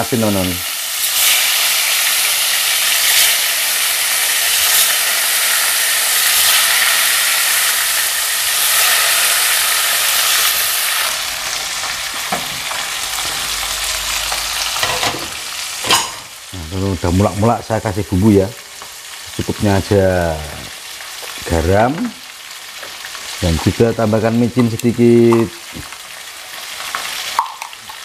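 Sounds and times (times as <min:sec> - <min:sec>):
fish sizzling in hot oil: 0:00.0 - 0:28.0
soup boiling hiss: 0:00.0 - 0:28.0
low rumble: 0:11.2 - 0:15.8.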